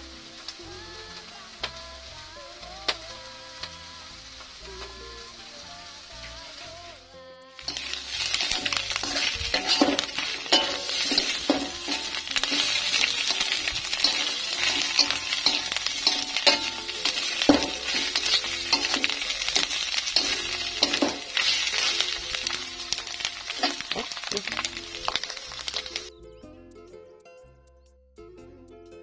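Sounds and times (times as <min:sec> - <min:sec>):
mushrooms sizzling in a wok: 0:00.0 - 0:26.1
metal spatula scraping pan: 0:07.7 - 0:22.6.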